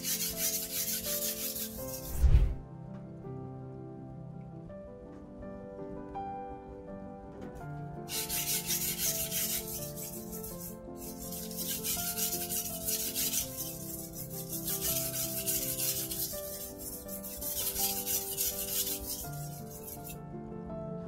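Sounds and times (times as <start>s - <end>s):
knife scraping on whetstone: 0.0s - 2.6s, 8.1s - 20.2s
background music: 0.0s - 21.0s.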